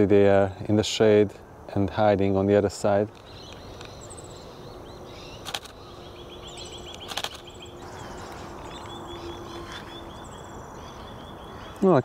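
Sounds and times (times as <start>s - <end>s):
small birds twittering: 0.0s - 12.0s
camera shutter bursts: 5.4s - 5.8s, 7.0s - 7.5s.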